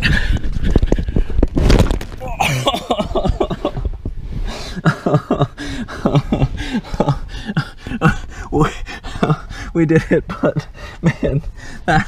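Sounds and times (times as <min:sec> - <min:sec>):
man grunting and panting: 0:04.5 - 0:12.0.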